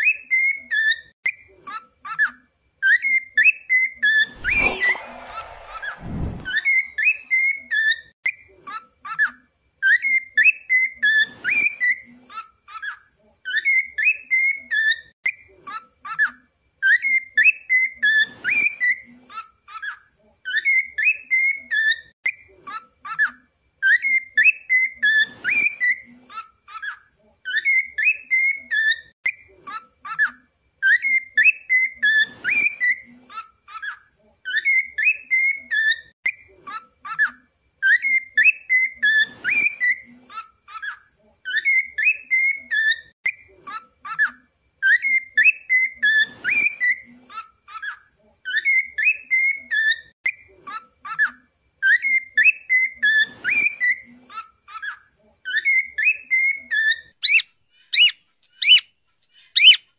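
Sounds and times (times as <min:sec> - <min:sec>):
cockatiel whistling: 0:02.9 - 0:08.0, 0:55.5 - 0:58.9, 0:59.5 - 0:59.9.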